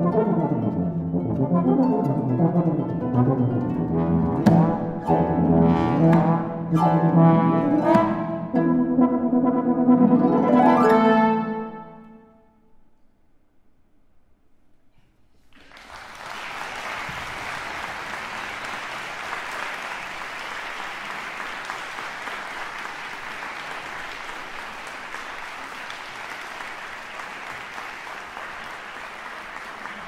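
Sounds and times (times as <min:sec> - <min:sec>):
audience applause: 0:15.5 - 0:30.0.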